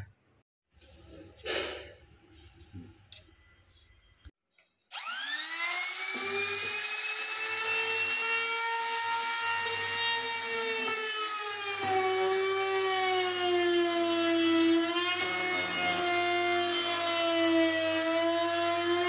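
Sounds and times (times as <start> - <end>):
router bit cutting plywood: 4.9 - 19.0
router whining: 4.9 - 19.0.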